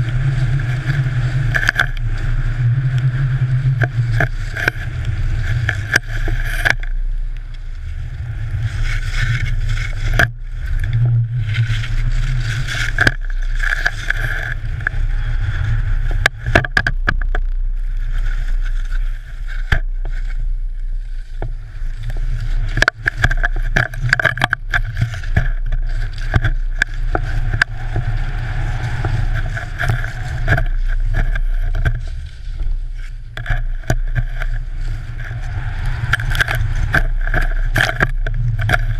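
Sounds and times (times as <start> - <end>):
wind rumble on microphone: 0.0 - 38.9
skis hissing through snow: 26.0 - 33.3.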